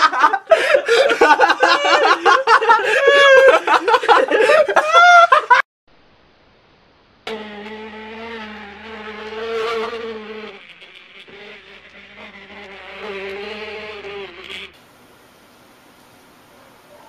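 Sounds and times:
person laughing: 0:00.0 - 0:05.6
low buzzing hum: 0:05.9 - 0:17.0.

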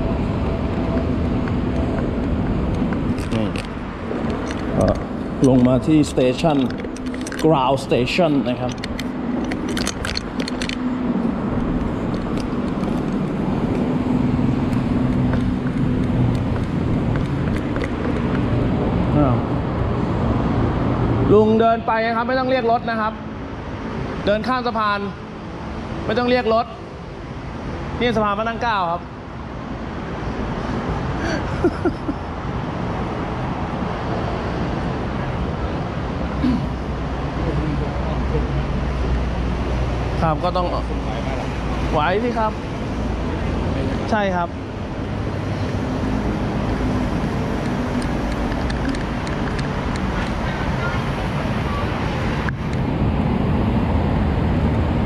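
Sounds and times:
low engine hum: 0:00.0 - 0:21.3
road traffic rumble: 0:00.0 - 0:55.0.

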